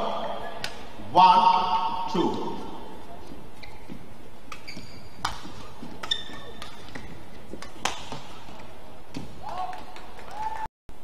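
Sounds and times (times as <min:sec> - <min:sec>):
court shoes squeaking: 0:00.4 - 0:09.4
rackets hitting a shuttlecock: 0:04.5 - 0:09.8.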